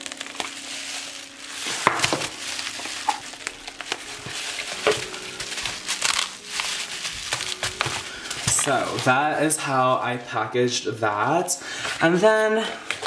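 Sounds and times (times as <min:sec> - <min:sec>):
sharp clicks of bubble wrap: 0:00.0 - 0:09.2
bubble wrap crinkling: 0:00.0 - 0:09.9.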